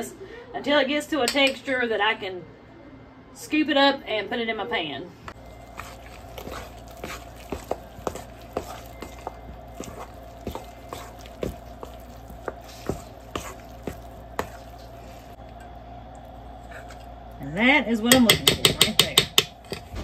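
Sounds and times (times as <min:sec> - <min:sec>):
steady low hum: 0:05.0 - 0:20.0
dough stirred in mixing bowl: 0:05.3 - 0:17.1.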